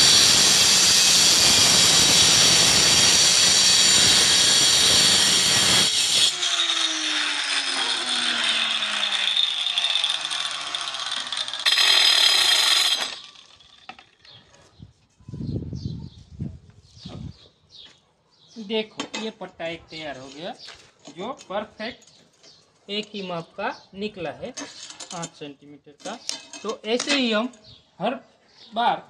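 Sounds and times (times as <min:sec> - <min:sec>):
grinder motor whine: 0:00.0 - 0:14.1
angle grinder cutting tile: 0:00.0 - 0:14.2.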